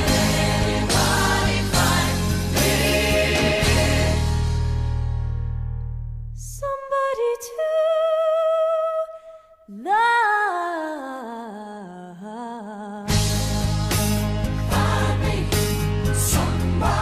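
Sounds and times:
band with bass: 0:00.0 - 0:06.4, 0:13.1 - 0:17.0.

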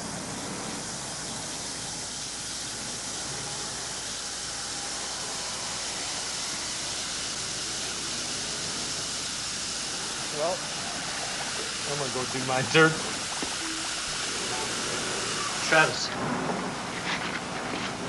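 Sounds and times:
tablet fizzing in water: 0:01.7 - 0:16.0.

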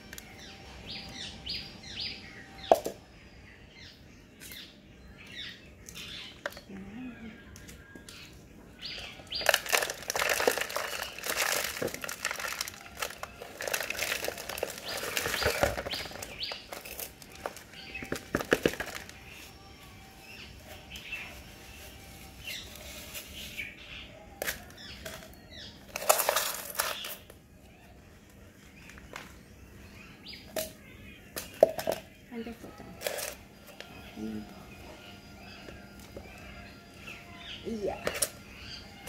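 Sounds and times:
potting soil worked by hand: 0:05.8 - 0:39.0
plastic plant pots knocked: 0:17.4 - 0:19.2
leaves brushed: 0:18.8 - 0:23.9.

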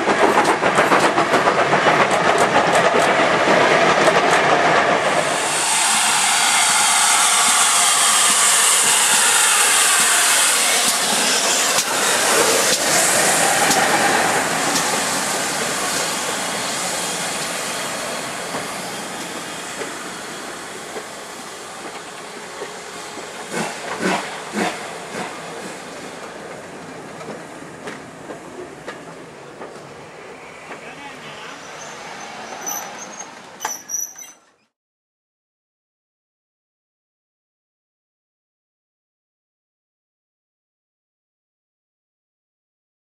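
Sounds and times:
train wheels clicking over rail joints: 0:00.0 - 0:05.3, 0:07.4 - 0:17.6, 0:18.2 - 0:30.0
steam locomotive hissing: 0:04.9 - 0:34.2.

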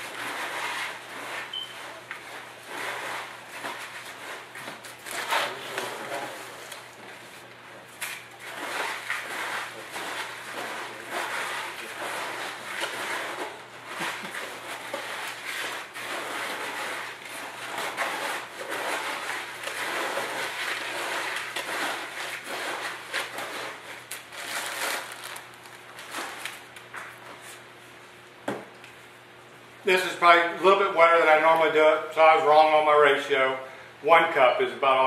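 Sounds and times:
cement mix scraping in bucket: 0:00.0 - 0:06.7, 0:08.4 - 0:26.4.

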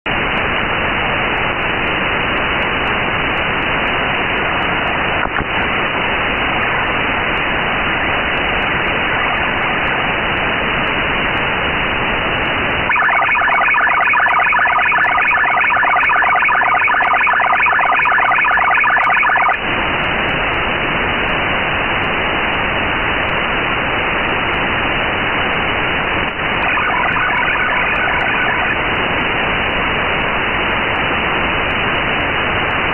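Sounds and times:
shortwave receiver hiss: 0:00.1 - 0:32.9
rapid multi-tone data chord: 0:12.9 - 0:19.6, 0:26.6 - 0:28.8.

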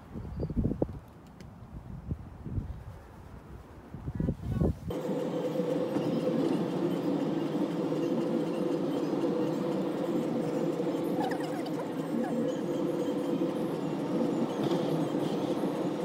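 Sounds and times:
wind buffeting microphone: 0:00.0 - 0:05.0.

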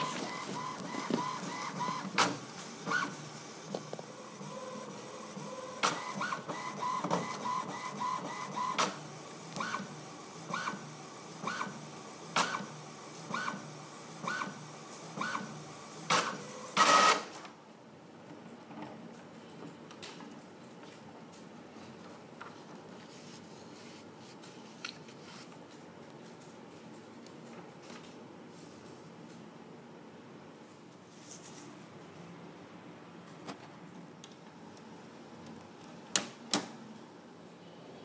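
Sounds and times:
printer carriage whine: 0:00.0 - 0:17.5
printer whirr: 0:00.0 - 0:17.6.

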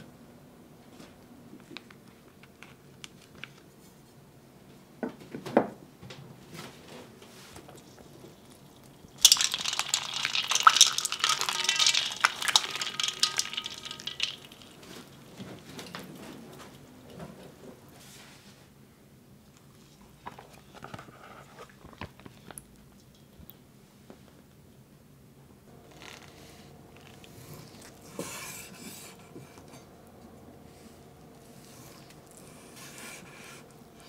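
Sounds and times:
plastic bag crinkling: 0:07.7 - 0:16.7
ice water splashing in metal bowl: 0:08.2 - 0:16.1
ice cubes clinking: 0:08.5 - 0:16.0.

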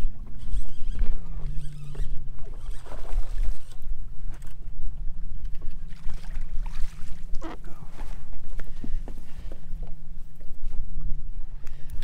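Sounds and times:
water splashes: 0:01.0 - 0:04.6, 0:05.5 - 0:09.5.

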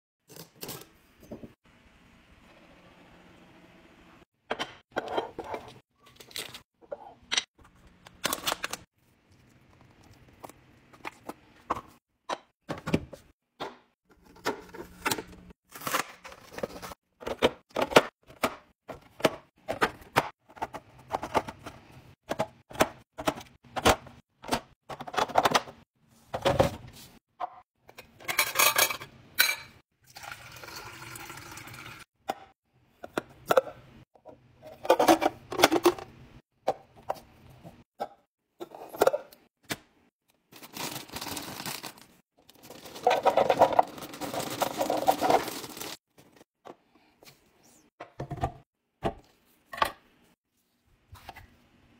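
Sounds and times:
water running into a jug: 0:30.0 - 0:32.1
plastic bag rustling: 0:40.5 - 0:46.0.

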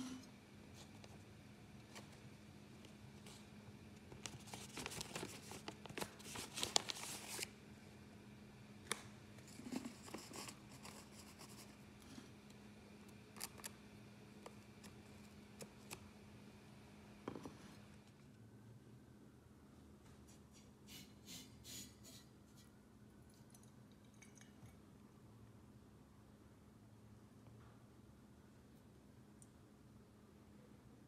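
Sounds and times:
paper rustling and crinkling: 0:04.1 - 0:07.5.

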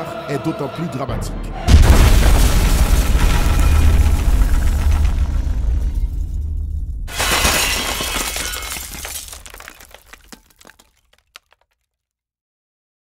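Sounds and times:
shattering crash: 0:01.7 - 0:11.4.

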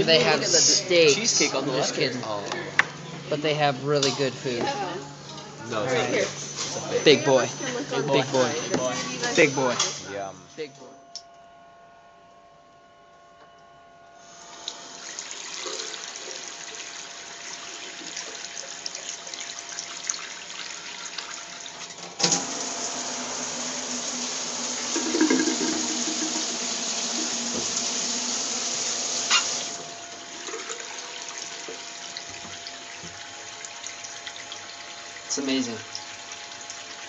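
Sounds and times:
water running from faucet: 0:14.3 - 0:37.0.

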